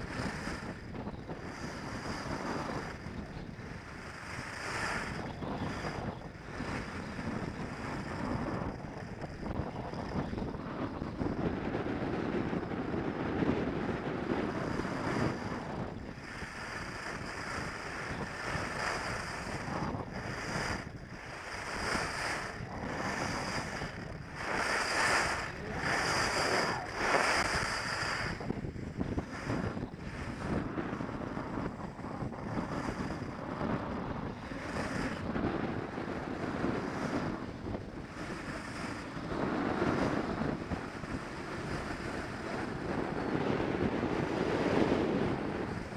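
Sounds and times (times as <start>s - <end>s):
wind rushing over microphone: 0.0s - 45.9s
skis sliding on snow: 16.2s - 31.3s, 32.4s - 37.4s, 38.0s - 45.9s.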